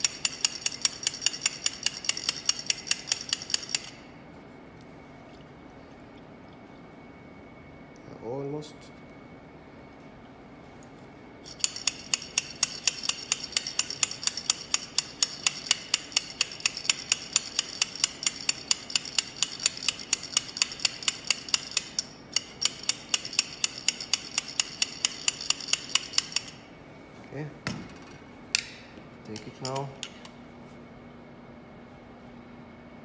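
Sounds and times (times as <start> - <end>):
metal rod clicking in metal cup: 0.0 - 4.0, 11.5 - 26.6, 29.3 - 30.2.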